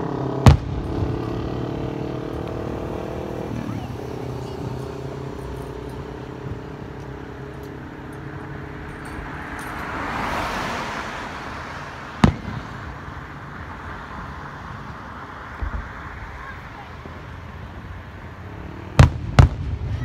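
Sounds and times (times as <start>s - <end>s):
vehicle engine running: 0.0s - 9.8s
traffic noise: 0.0s - 20.0s
vehicle passing: 0.0s - 20.0s
firework bang: 0.4s - 1.2s, 12.2s - 12.9s, 18.9s - 20.0s.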